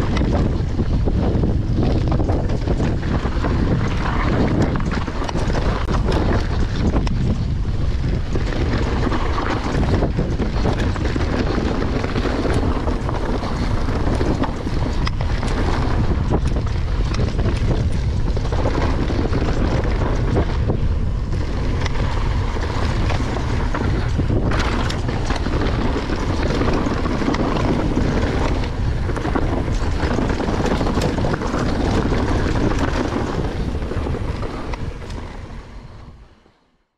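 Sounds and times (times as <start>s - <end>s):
stones and bike rattling: 0.0s - 36.5s
wind buffeting microphone: 0.0s - 36.6s
bike tyre rumble: 0.0s - 36.7s.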